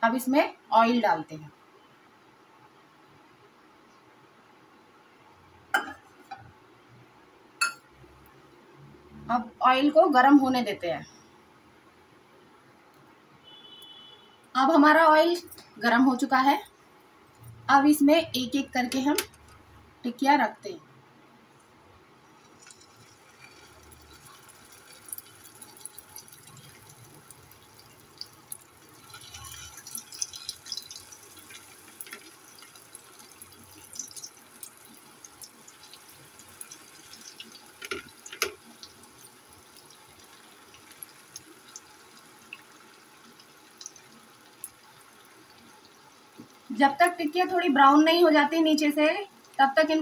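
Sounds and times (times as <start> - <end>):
patties sizzling in hot oil: 22.3 - 50.0.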